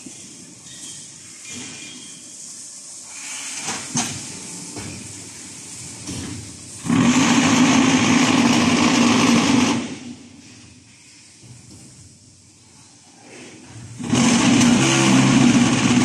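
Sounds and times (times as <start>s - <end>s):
loud machine vibration: 6.8s - 10.3s, 13.8s - 16.0s.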